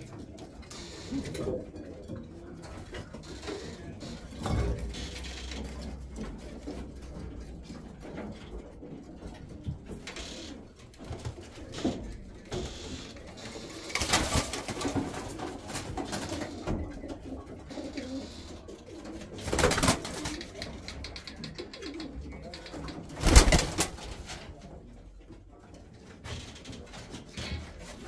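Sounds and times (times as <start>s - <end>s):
pigeons cooing: 15.1s - 23.9s.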